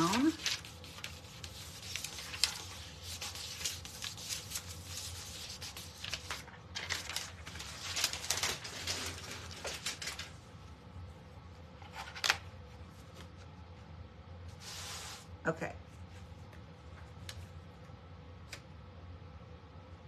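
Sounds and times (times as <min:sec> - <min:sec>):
paper rustling and scratching: 0:00.0 - 0:10.4, 0:11.8 - 0:13.5.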